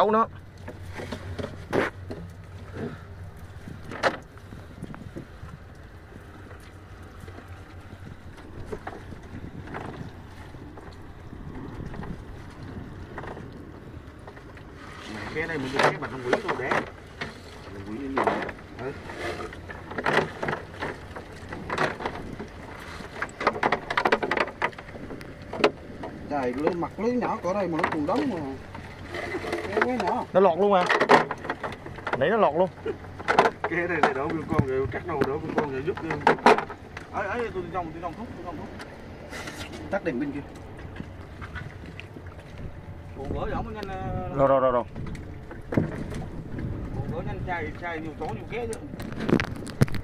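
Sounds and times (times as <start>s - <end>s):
boat engine humming: 0.0s - 50.0s
water splashing: 0.0s - 50.0s
fishing net knocks: 30.8s - 32.2s.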